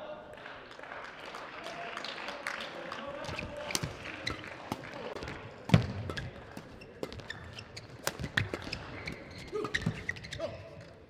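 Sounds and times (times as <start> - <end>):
rackets striking shuttlecock: 3.7 - 10.2
shoe squeaks: 6.1 - 10.9.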